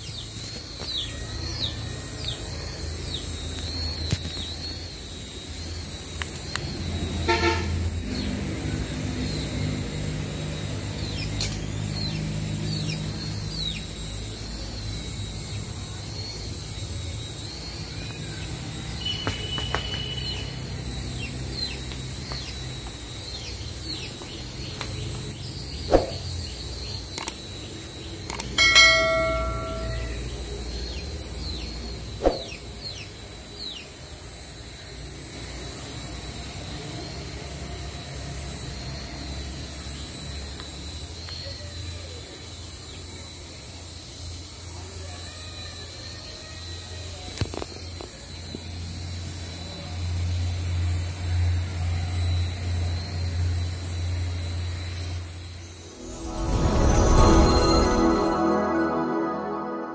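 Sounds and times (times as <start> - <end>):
toy helicopter motor whine: 8.6 - 28.6, 34.1 - 55.7.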